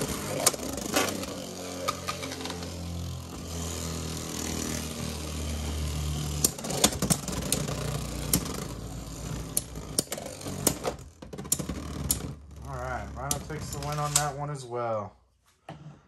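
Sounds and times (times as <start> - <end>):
spinning tops whirring: 0.0 - 12.3.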